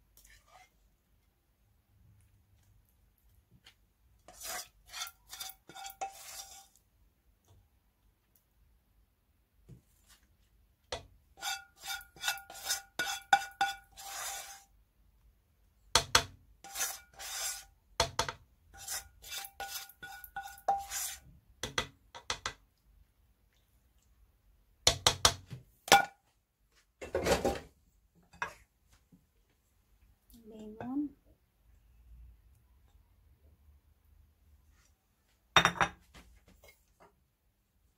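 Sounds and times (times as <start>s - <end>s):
spoon scraping a metal pan: 4.3s - 6.8s, 11.4s - 14.7s, 16.6s - 17.8s, 18.7s - 21.3s.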